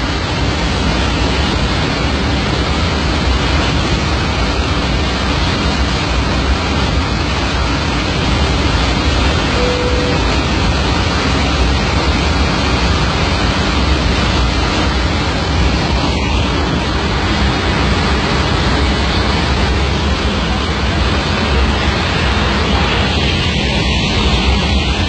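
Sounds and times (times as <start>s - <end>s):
rushing air and engine roar: 0.0s - 25.0s.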